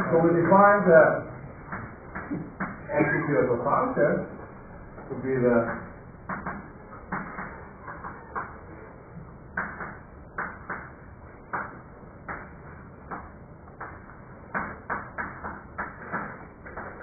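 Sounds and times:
chalk tapping on blackboard: 0:05.7 - 0:07.5.

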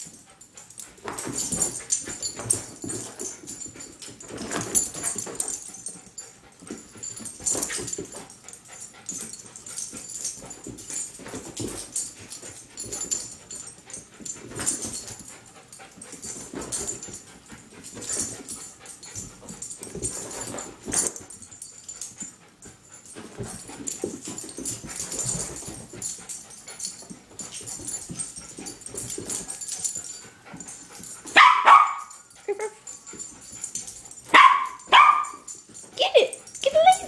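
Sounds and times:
dog barking: 0:31.4 - 0:32.1, 0:34.3 - 0:35.5.

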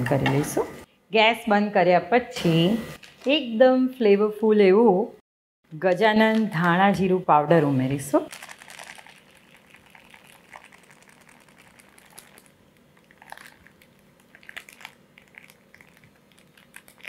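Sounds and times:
plastic packet crinkling: 0:08.2 - 0:17.0.

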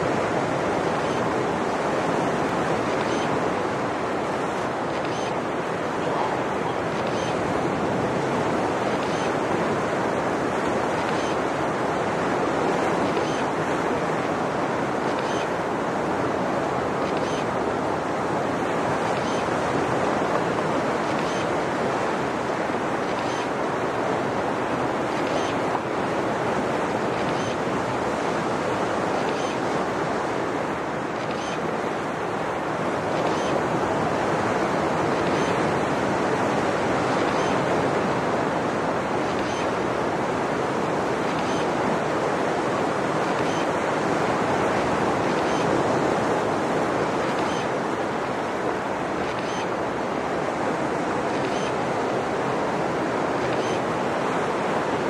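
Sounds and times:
ocean surf breaking: 0:00.0 - 0:55.0.

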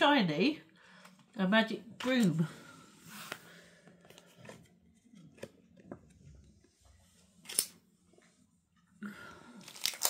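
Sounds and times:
crisp card snap: 0:07.4 - 0:07.8.

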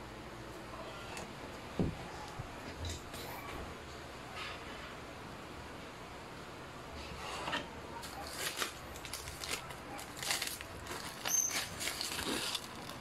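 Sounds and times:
paper bag rustling: 0:08.0 - 0:13.0
brief high squeak: 0:11.3 - 0:11.7.

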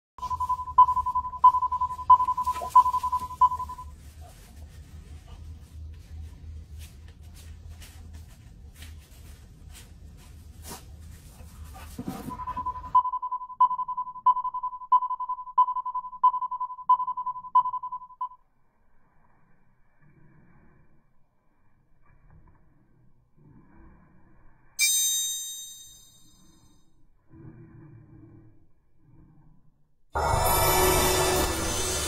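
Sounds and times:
electronic beeps: 0:00.2 - 0:03.9.

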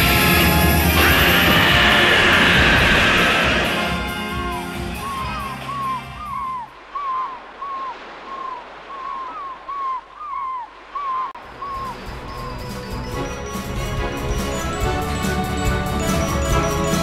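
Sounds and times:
background music: 0:00.0 - 0:06.6, 0:11.4 - 0:17.0
birds calling: 0:01.0 - 0:17.0.

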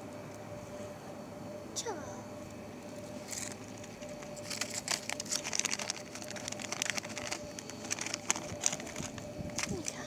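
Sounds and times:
faint steady hum: 0:00.0 - 0:10.0
rustling and crackling: 0:03.0 - 0:10.0.

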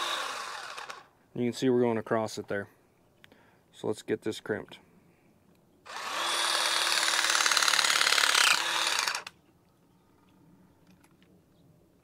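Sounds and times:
wire crimper motor running: 0:00.0 - 0:01.1, 0:05.9 - 0:09.3.

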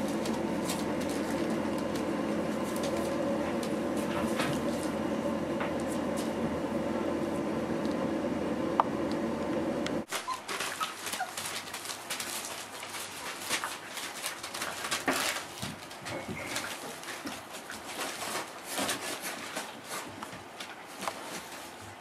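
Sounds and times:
paws on newspaper: 0:00.0 - 0:05.1, 0:10.1 - 0:22.0
steady hum: 0:00.0 - 0:10.1
puppies squeaking: 0:10.1 - 0:11.5
puppies lapping and chewing: 0:10.1 - 0:21.9.

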